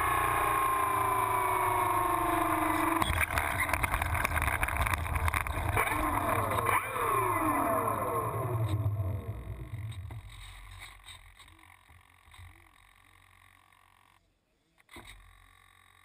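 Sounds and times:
model plane motor whining down: 0.0s - 10.1s
wheels rumbling over grass: 1.8s - 7.2s.

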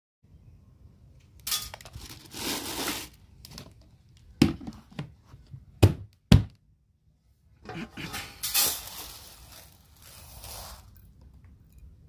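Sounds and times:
plastic sack crinkling: 1.7s - 3.6s, 8.5s - 11.0s.

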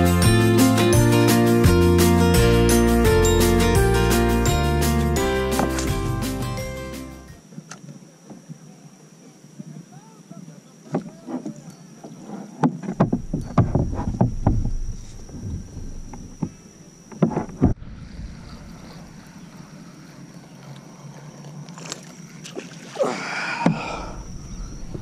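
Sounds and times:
wind rumble on microphone: 13.0s - 16.5s, 17.4s - 19.4s, 24.1s - 25.0s
splash on water: 21.7s - 23.2s.

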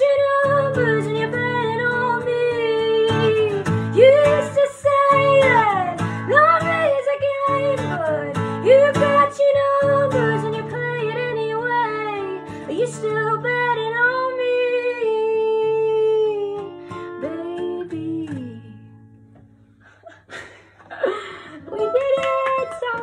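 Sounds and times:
strummed acoustic guitar: 0.0s - 14.6s
woman singing: 0.0s - 19.0s, 21.6s - 23.0s.

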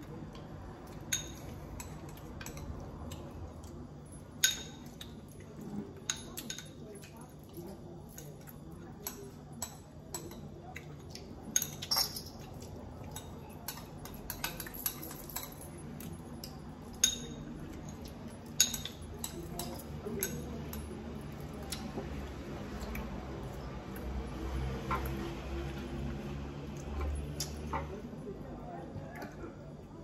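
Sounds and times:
spoons clinking against dishes: 0.8s - 21.8s.

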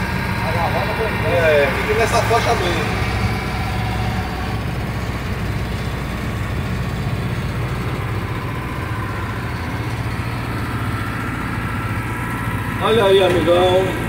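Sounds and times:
bus engine droning: 0.0s - 14.0s
road noise: 0.0s - 14.0s.

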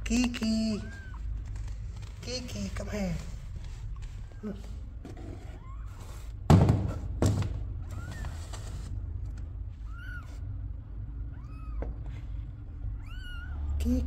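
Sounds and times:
cat meowing: 0.6s - 1.4s, 5.4s - 6.3s, 9.8s - 10.4s, 11.2s - 12.0s, 12.9s - 13.9s
heavy thumps: 6.4s - 7.7s.

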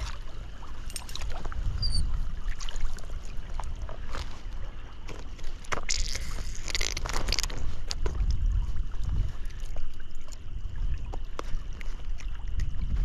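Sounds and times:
flowing creek: 0.0s - 13.0s
wind rumble on microphone: 0.0s - 13.0s.

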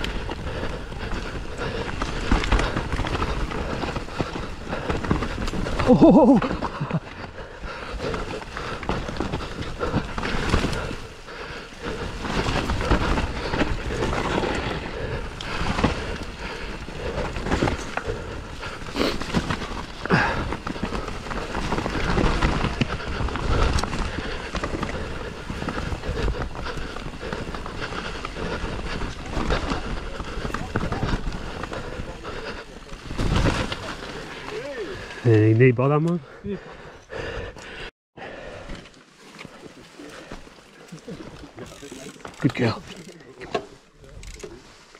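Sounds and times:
bike clattering over bumps: 0.0s - 34.8s
bike tyres rumbling on trail: 0.0s - 44.9s.

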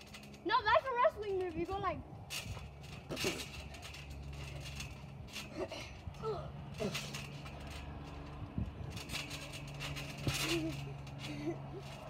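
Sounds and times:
steady low hum: 0.0s - 12.0s
trampoline creaking: 0.0s - 12.0s
trampoline thuds: 0.0s - 12.0s
children grunting: 5.5s - 7.1s.

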